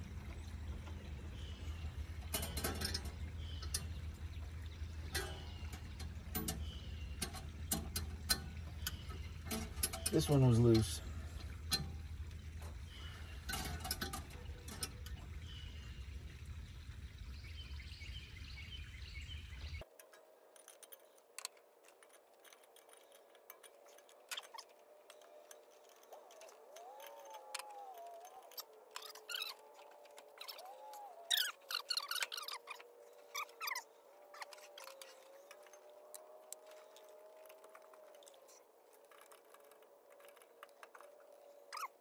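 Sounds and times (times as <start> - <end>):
steady low hum: 0.0 - 20.5
faint short squeaks: 41.6 - 42.0.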